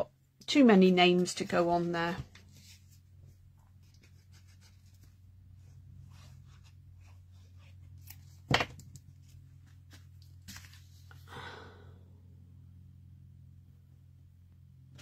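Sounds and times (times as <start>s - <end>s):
paper rustle: 6.1s - 11.2s
cardstock rustling: 6.2s - 11.2s.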